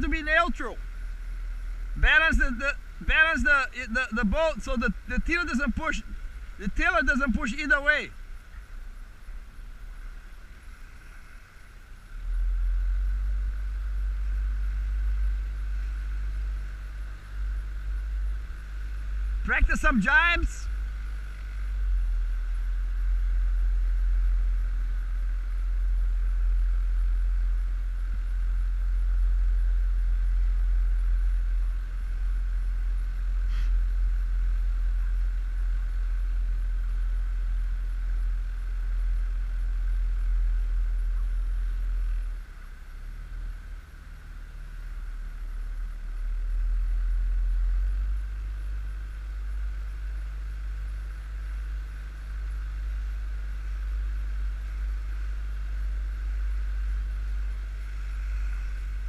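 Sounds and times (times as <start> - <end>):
outboard motor running: 45.4 - 59.0.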